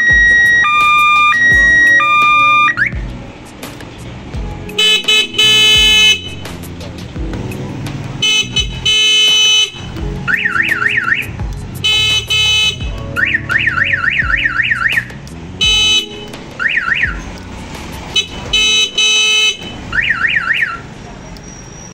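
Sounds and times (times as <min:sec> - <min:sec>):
electronic siren horn tone and yelp: 0:00.0 - 0:03.0, 0:08.2 - 0:17.2.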